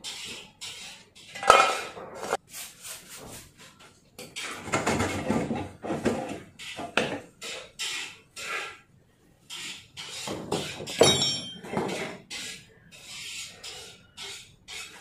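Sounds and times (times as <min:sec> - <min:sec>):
rubbing or scraping strokes: 0:00.0 - 0:03.8, 0:05.6 - 0:08.9, 0:11.8 - 0:15.0.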